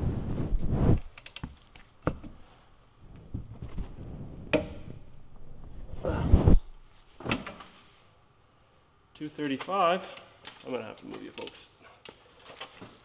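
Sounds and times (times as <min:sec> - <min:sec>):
clothing rubbing on microphone: 0:00.0 - 0:01.1, 0:05.4 - 0:07.1.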